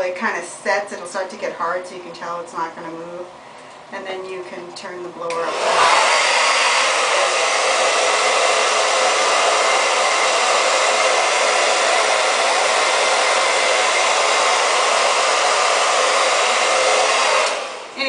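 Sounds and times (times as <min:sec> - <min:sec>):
blow dryer running: 0:05.3 - 0:18.0.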